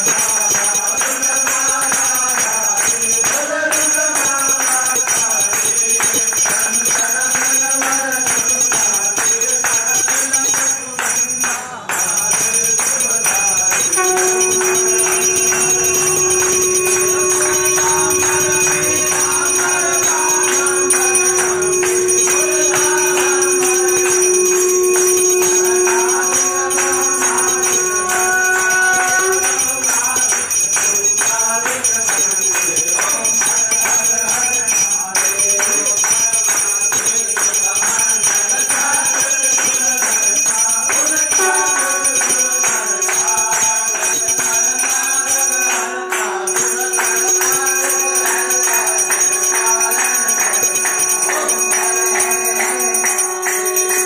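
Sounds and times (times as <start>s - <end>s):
bell ringing: 0.0s - 54.0s
group clapping: 0.0s - 54.0s
group singing: 0.0s - 54.0s
long steady held note: 8.2s - 54.0s.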